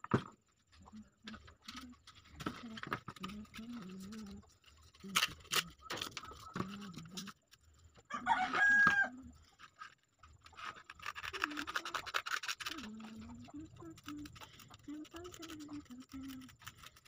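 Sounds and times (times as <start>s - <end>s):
rooster crowing: 8.1s - 9.3s
sandpaper crackling: 10.5s - 13.3s.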